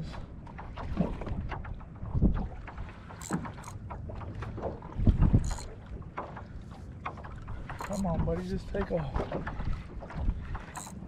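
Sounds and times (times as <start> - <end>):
water splashing against kayak hull: 0.0 - 11.0
wind on microphone: 0.8 - 2.9, 4.5 - 5.7.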